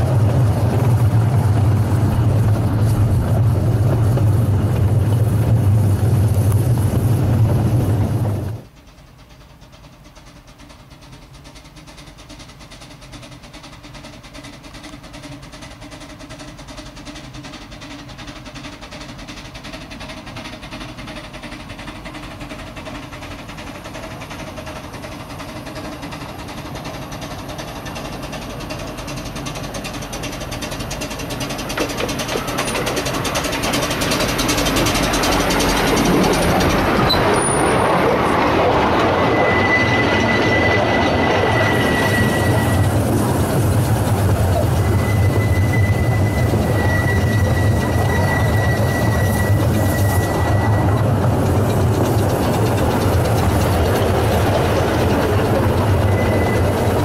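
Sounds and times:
miniature steam locomotive running: 0:00.0 - 0:57.0.

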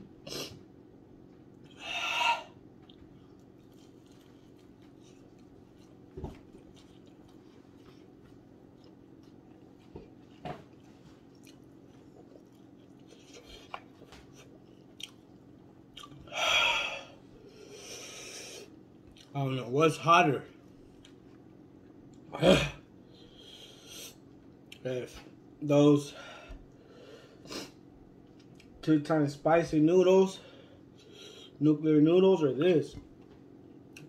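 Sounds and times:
man chewing: 0:00.1 - 0:19.3, 0:23.1 - 0:24.8, 0:26.5 - 0:28.8.

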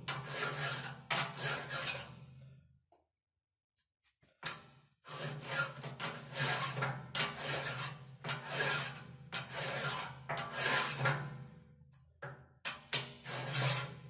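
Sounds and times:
file rasping on steel: 0:00.1 - 0:02.2, 0:05.1 - 0:11.0, 0:13.0 - 0:14.0.

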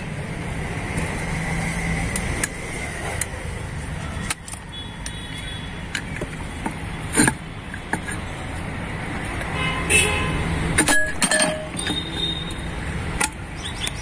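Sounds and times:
metal clicks and scrapes: 0:04.1 - 0:05.2, 0:05.8 - 0:09.6, 0:10.7 - 0:14.0.

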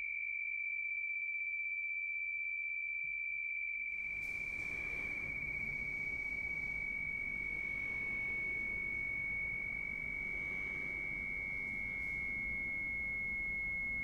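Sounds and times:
faint low rumble: 0:04.0 - 0:14.0
high-pitched pure tone: 0:04.0 - 0:14.0.

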